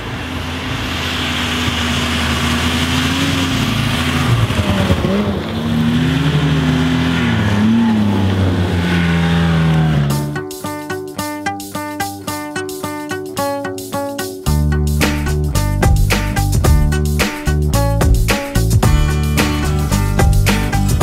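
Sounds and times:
snowmobiles passing: 0.0s - 10.4s.

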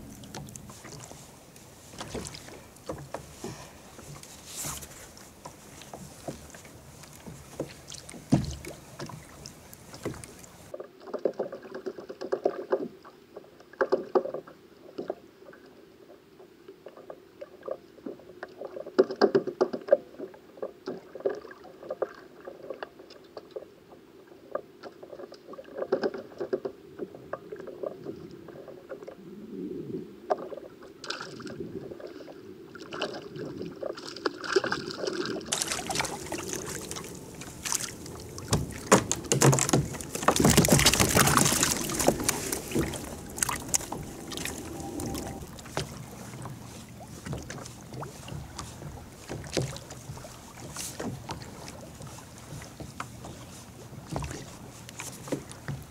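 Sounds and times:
water lapping around kayak: 0.0s - 55.9s
loud splashing of fish: 34.6s - 46.3s.

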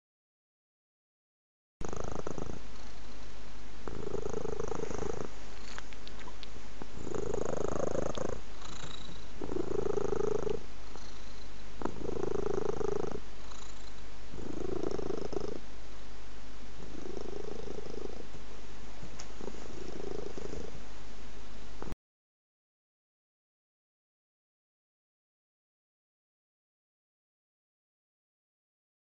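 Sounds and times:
cat purring: 1.8s - 15.7s, 16.8s - 18.4s, 19.1s - 20.8s.

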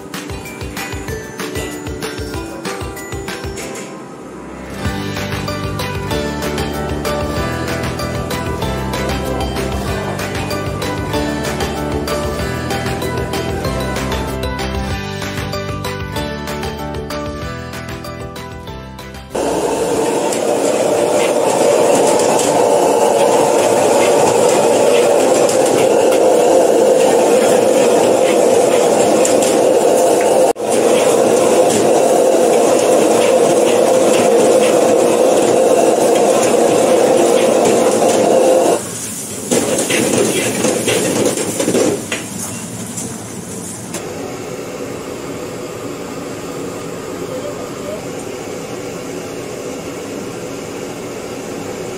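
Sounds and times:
gas burner flame rushing: 19.4s - 51.9s
kitchen hum: 19.4s - 51.9s.

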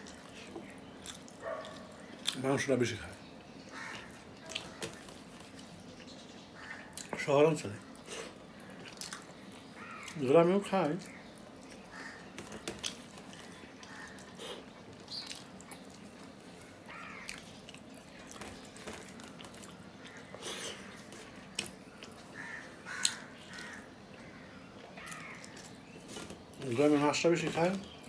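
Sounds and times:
chewing with mouth smacks: 0.0s - 2.4s, 3.6s - 6.2s, 6.9s - 7.2s, 8.0s - 10.2s, 11.0s - 26.5s.

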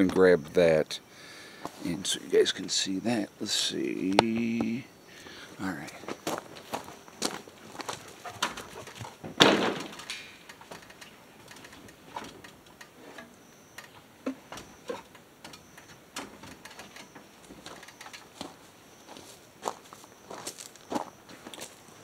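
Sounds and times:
metal ladder clanking: 8.3s - 12.5s.

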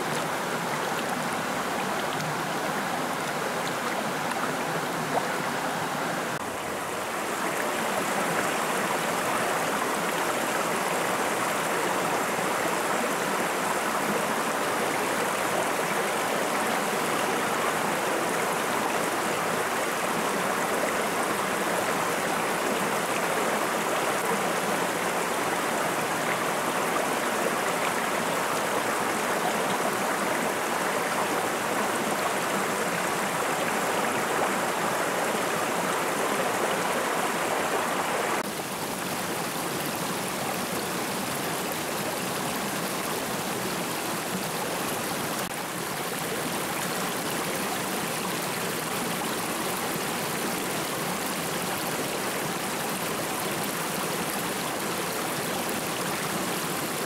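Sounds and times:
stream rushing over stones: 0.0s - 57.0s.

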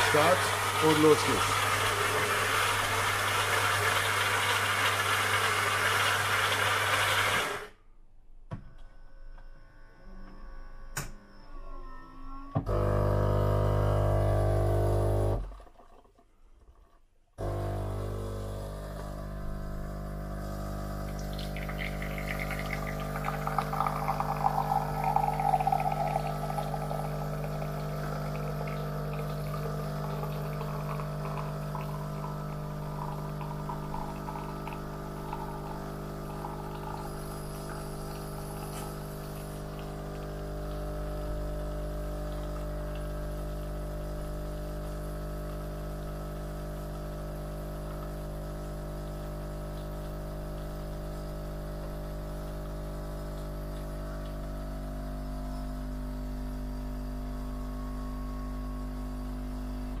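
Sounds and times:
coffee pouring into glass: 0.0s - 7.6s, 17.6s - 43.4s
coffee machine pump humming: 0.0s - 7.8s, 12.6s - 16.0s, 17.4s - 60.0s.

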